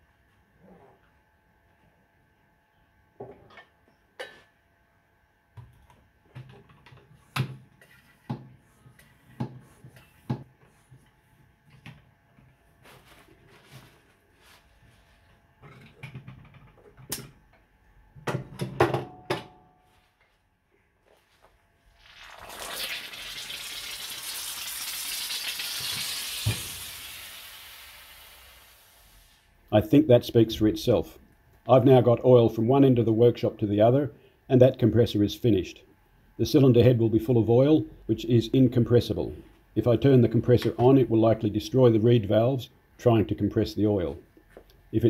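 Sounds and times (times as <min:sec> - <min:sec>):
loud hiss of escaping air: 0:25.9 - 0:29.5.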